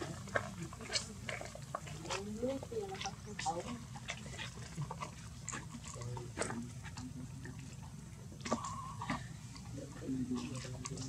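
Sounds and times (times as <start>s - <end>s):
low steady hum: 0.0s - 11.0s
macaques grunting softly: 8.3s - 11.0s.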